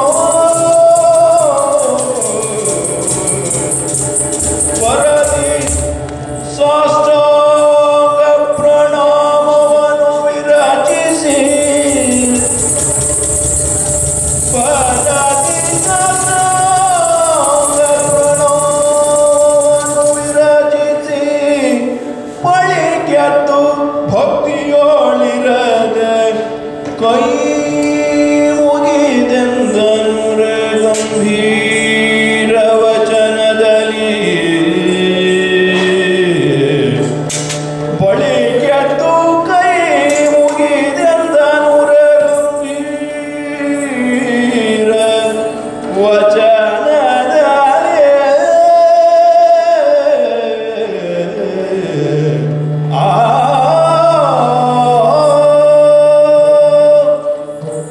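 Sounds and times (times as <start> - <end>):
man singing long gliding notes: 0.0 - 57.9
drum strokes: 11.1 - 20.5.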